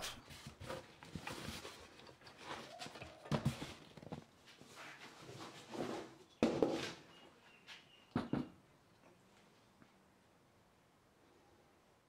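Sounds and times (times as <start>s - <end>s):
cardboard rustling and scraping: 0.0s - 7.0s.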